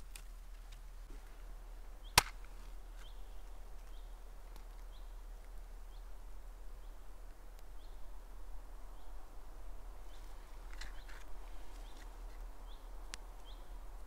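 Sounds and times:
small bird chirping: 1.9s - 8.1s, 10.0s - 14.0s.

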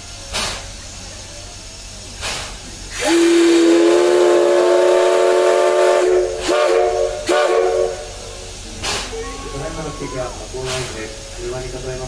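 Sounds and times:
steam locomotive whistle blasts: 2.9s - 8.3s.

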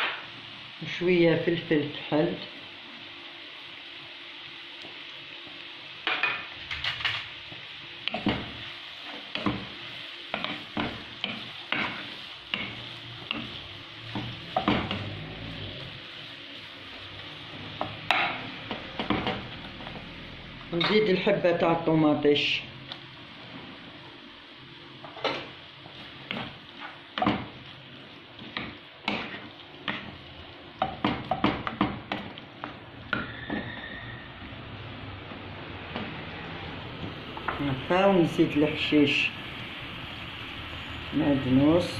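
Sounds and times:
meat sizzling in frying pan: 0.0s - 41.9s
spatula scraping a pan: 8.0s - 15.3s, 28.4s - 30.2s.

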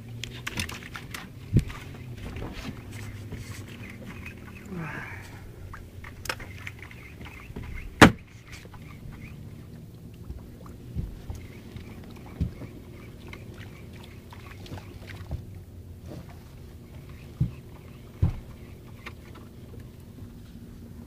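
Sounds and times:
boat engine idling: 0.0s - 21.0s
sharp knocks: 7.6s - 8.2s.

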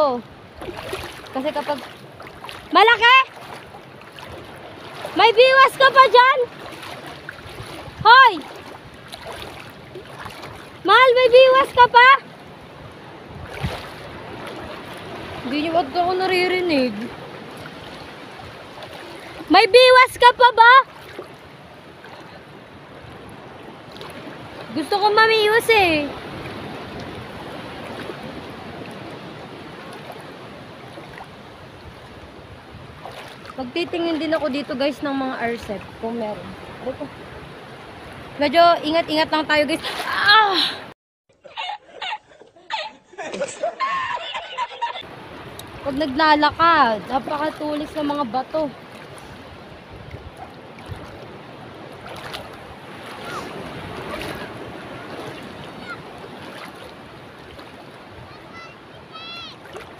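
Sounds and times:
seawater washing over rocks: 0.0s - 12.3s, 45.4s - 59.9s
soft splashes: 0.0s - 19.6s, 20.6s - 38.4s, 39.7s - 40.9s, 43.2s - 43.9s, 45.0s - 59.9s
wind buffeting microphone: 0.0s - 40.5s, 45.2s - 59.9s
shallow water washing: 0.0s - 59.9s.

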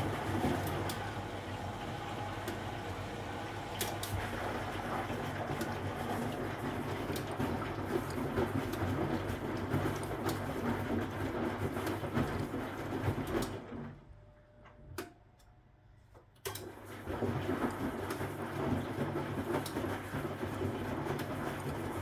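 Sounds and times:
washing machine drum tumbling: 0.0s - 14.0s
washing machine click: 3.7s - 4.3s.

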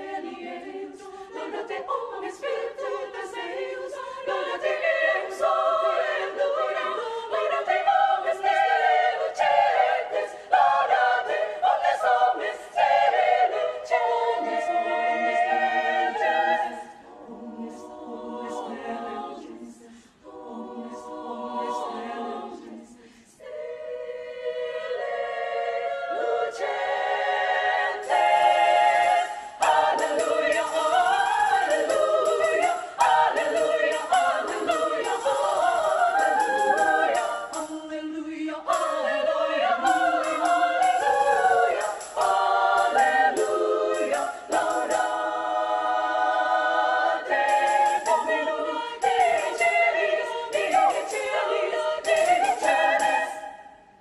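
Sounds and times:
women's choir singing unaccompanied: 0.0s - 54.0s.

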